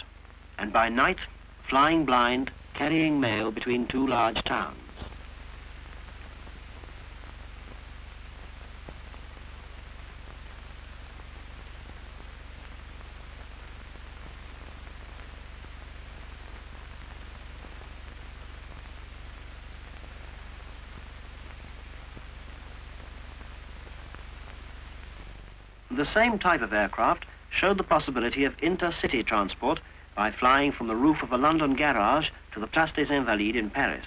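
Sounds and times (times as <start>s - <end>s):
film soundtrack hiss and hum: 0.0s - 34.0s.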